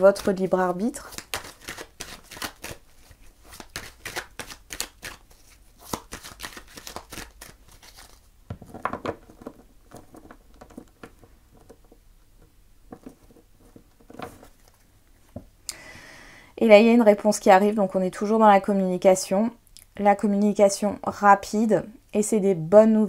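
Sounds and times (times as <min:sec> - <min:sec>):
cards being shuffled: 0:00.0 - 0:11.8.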